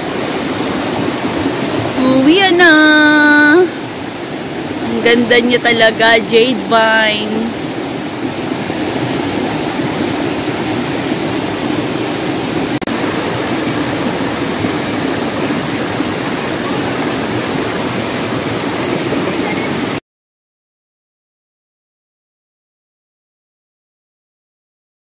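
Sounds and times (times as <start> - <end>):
stream rushing over rocks: 0.0 - 20.0.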